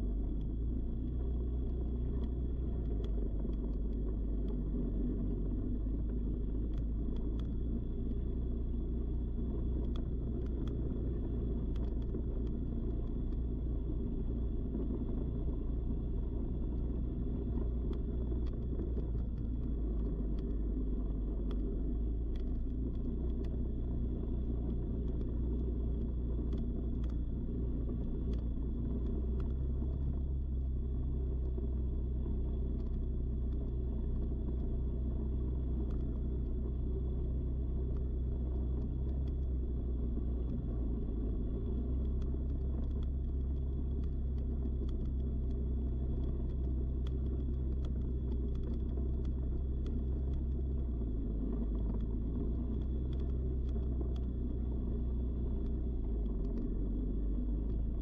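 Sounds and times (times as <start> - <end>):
atv engine running: 0.0 - 58.0
wind and road noise: 0.0 - 58.0.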